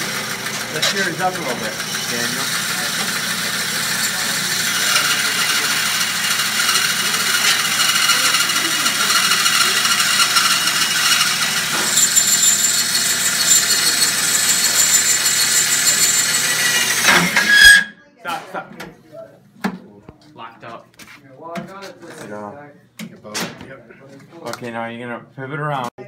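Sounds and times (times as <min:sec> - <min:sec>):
bandsaw grinding through metal: 0:00.0 - 0:17.9.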